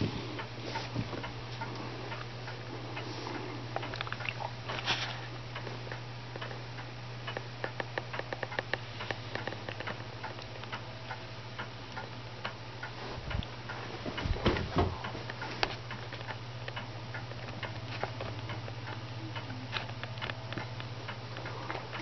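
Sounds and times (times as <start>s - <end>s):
mechanical clock ticking: 5.5s - 13.8s, 15.0s - 22.0s
soft thumps: 14.0s - 15.2s.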